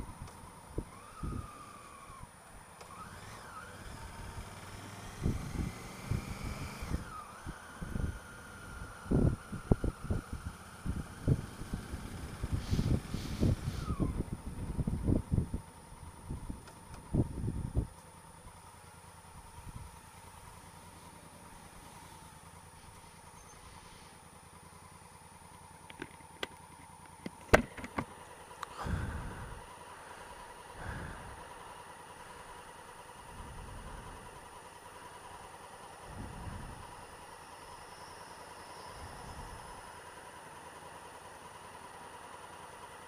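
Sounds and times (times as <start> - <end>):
motorcycle engine idling: 0.0 - 43.0
engine revving: 0.8 - 14.9.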